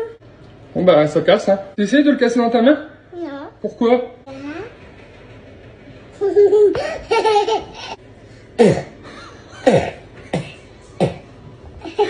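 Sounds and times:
small child laughing: 0:06.3 - 0:08.0.

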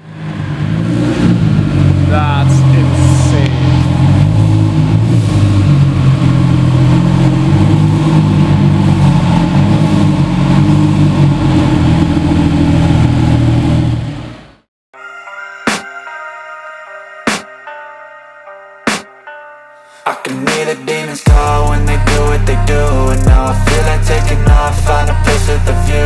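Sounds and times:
car engine idling: 0:00.0 - 0:14.6.

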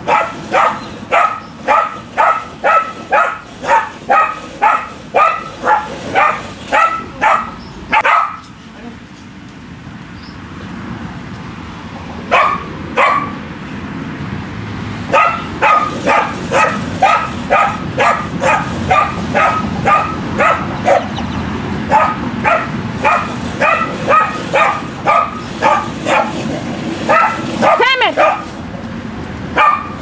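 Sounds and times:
dog barking: 0:00.0 - 0:08.5, 0:12.3 - 0:13.4, 0:15.1 - 0:21.2, 0:21.9 - 0:26.4, 0:27.1 - 0:28.5, 0:29.6 - 0:30.0.

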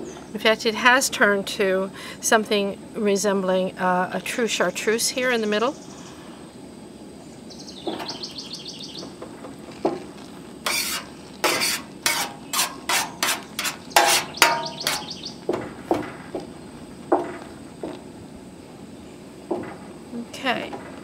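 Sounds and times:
metal spoon knocking on steel pan: 0:13.6 - 0:15.6.

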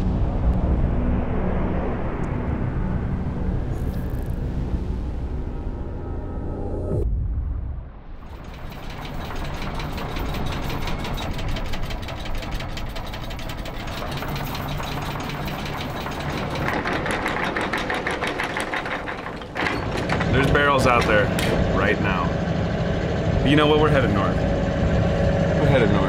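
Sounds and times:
boat engine knocking: 0:08.3 - 0:26.0
bright higher engine layer: 0:08.3 - 0:26.0.

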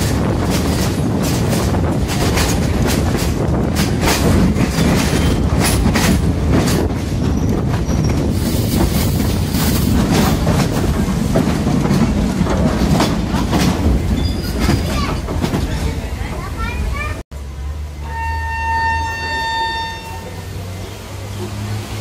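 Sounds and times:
wheels clacking over rail joints: 0:00.0 - 0:17.2
train rumble: 0:00.0 - 0:22.0.

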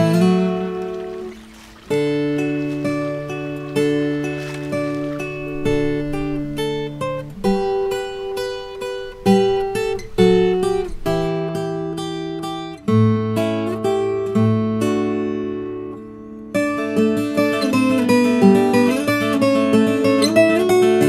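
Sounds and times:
acoustic guitar instrumental: 0:00.0 - 0:21.0.

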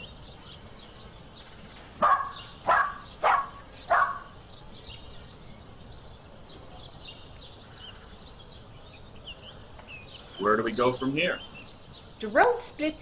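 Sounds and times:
birdsong chirping: 0:00.0 - 0:13.0
dog barking: 0:02.0 - 0:04.3.

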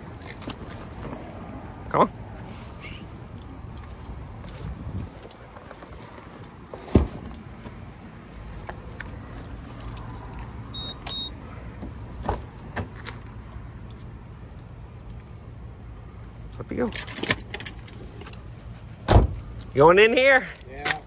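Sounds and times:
high beeps: 0:10.7 - 0:11.4.

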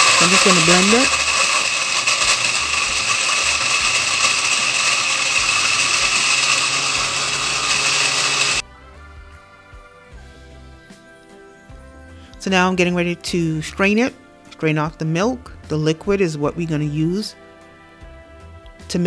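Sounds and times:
blender running: 0:00.0 - 0:08.6.

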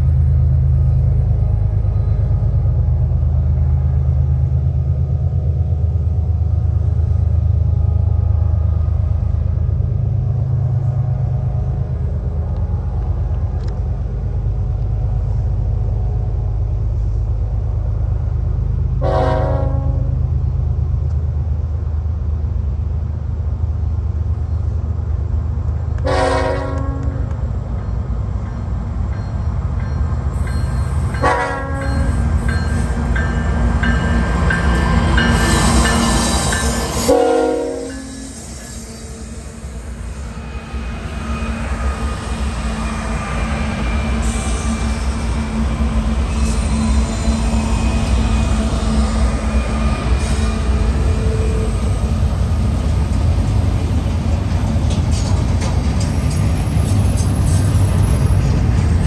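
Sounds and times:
diesel locomotive rumble: 0:00.0 - 0:59.0
train horn blast: 0:19.0 - 0:20.1, 0:26.0 - 0:27.3, 0:31.2 - 0:32.1, 0:37.0 - 0:38.4.

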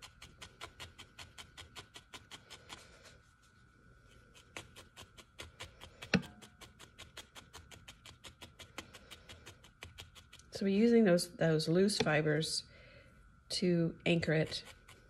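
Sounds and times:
felting needle tapping into foam: 0:04.8 - 0:10.5.

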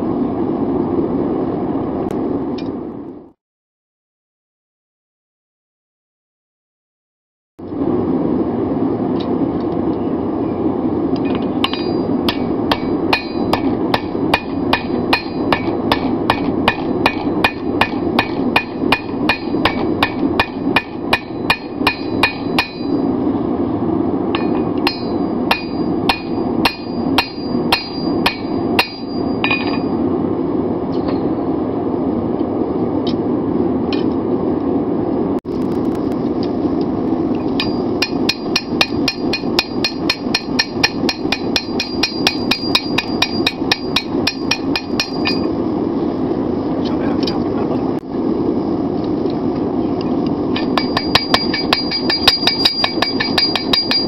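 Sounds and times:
steady rushing noise: 0:07.6 - 0:54.0
hammer striking steel on anvil: 0:11.2 - 0:23.0, 0:24.3 - 0:29.9, 0:37.6 - 0:45.6, 0:50.6 - 0:54.0.

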